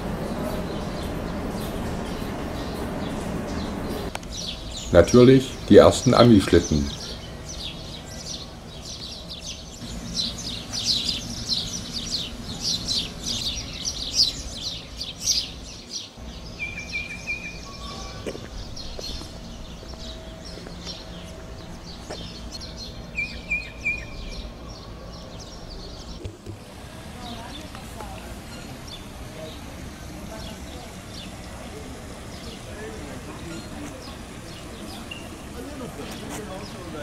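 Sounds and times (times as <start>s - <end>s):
low hum: 0.0s - 6.1s
bird trills: 0.0s - 26.2s
birds chirping: 0.0s - 37.0s.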